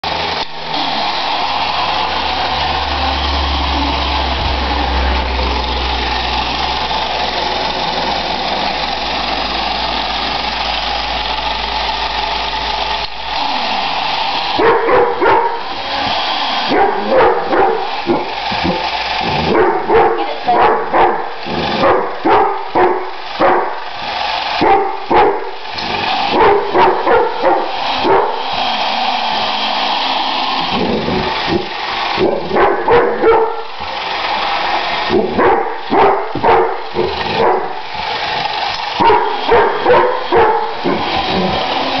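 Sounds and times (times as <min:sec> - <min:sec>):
dog barking frantically: 0:14.6 - 0:16.0, 0:16.7 - 0:23.8, 0:24.6 - 0:25.6, 0:26.2 - 0:28.4, 0:31.0 - 0:33.8, 0:35.0 - 0:37.9, 0:38.9 - 0:42.0.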